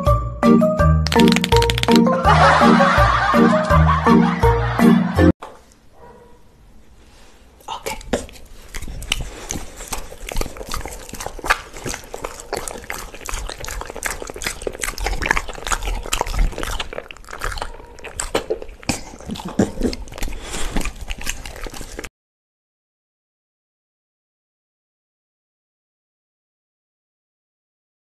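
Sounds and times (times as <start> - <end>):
dog chewing meat: 8.0 - 22.1.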